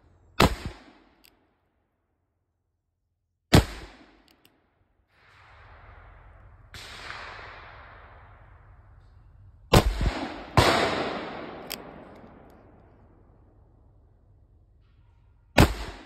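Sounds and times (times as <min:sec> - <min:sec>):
revolver shots echoing: 0:09.7 - 0:13.3
sharp click: 0:11.6 - 0:12.6.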